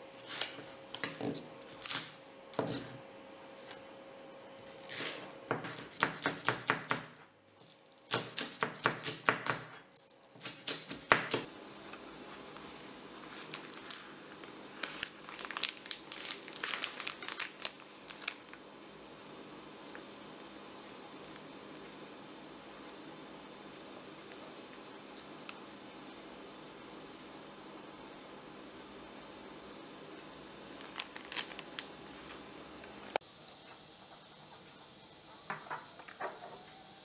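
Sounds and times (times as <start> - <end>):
plastic bag crinkling: 12.6 - 18.6, 30.7 - 32.7.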